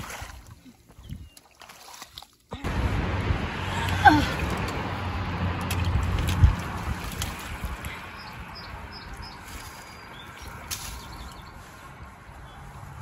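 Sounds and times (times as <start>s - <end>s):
water sloshing: 0.0s - 2.6s, 4.0s - 8.2s, 9.0s - 11.8s
low steady rumble: 2.6s - 8.1s.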